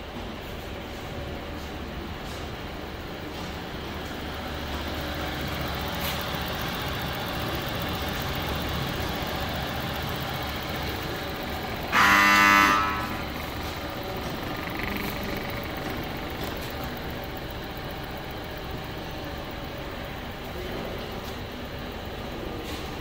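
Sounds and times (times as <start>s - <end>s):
fan motors humming: 0.0s - 23.0s
horn-like beep: 11.9s - 13.4s.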